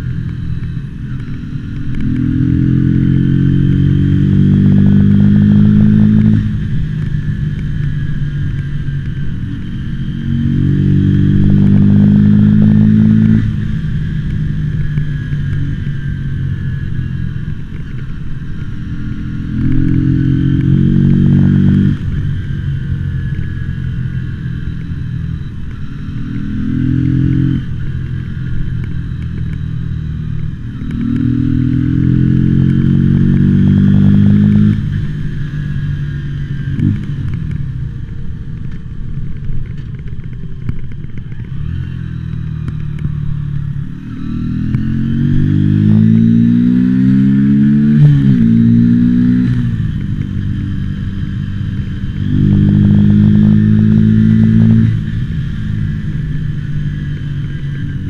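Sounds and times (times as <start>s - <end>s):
engine crackling: 0.0s - 58.0s
motorcycle engine accelerating: 0.0s - 58.0s.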